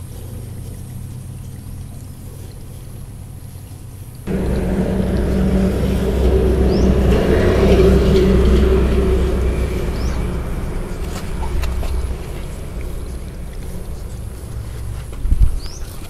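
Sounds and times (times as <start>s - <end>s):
motor engine passing: 4.3s - 16.0s.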